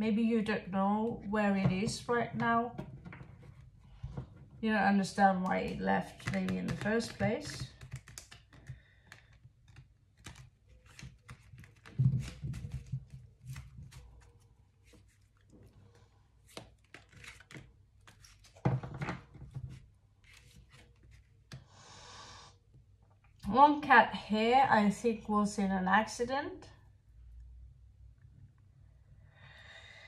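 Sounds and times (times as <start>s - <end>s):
cards shuffling on a table: 6.0s - 15.5s, 16.4s - 21.6s.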